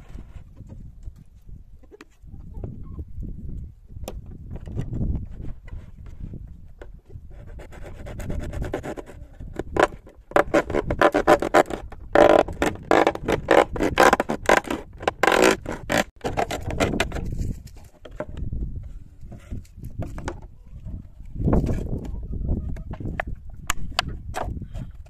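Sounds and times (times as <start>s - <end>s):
knife sawing through plastic: 7.3s - 17.5s.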